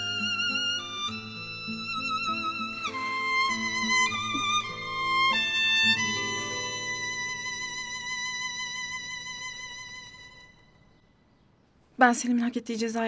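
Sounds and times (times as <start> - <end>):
slow sad violin melody: 0.0 - 11.1.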